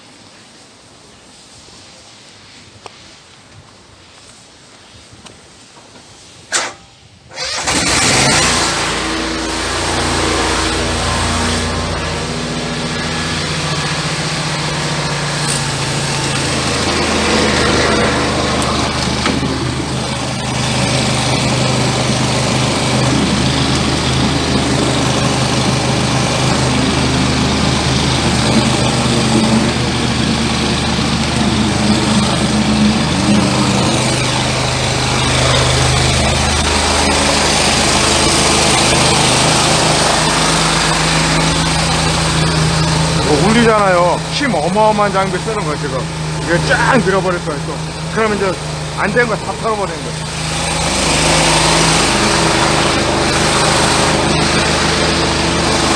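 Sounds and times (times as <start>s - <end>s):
sewer jetter engine running: 6.5s - 55.9s
hose jetting hiss: 9.2s - 21.9s.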